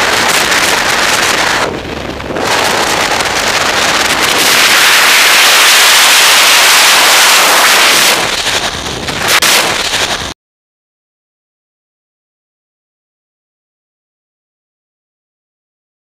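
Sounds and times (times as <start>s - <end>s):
wind roaring over microphone: 0.0s - 10.4s.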